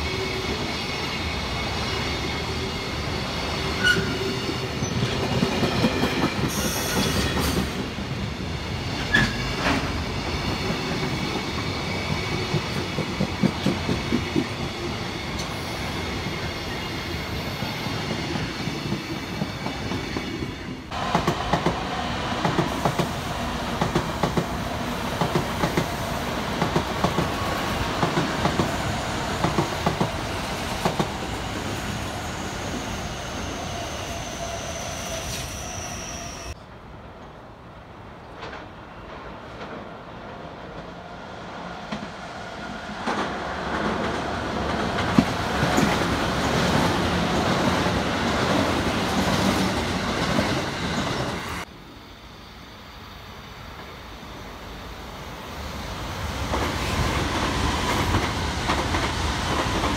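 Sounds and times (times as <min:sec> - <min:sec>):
train wheels clacking: 0:09.0 - 0:31.6, 0:56.4 - 0:59.9.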